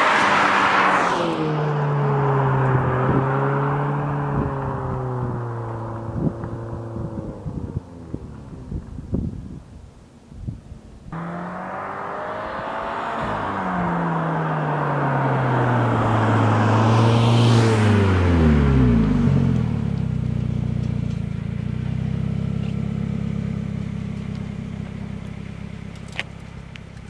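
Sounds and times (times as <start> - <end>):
car driving past: 0.0 - 8.5, 11.1 - 24.2
car engine idling: 19.0 - 27.0.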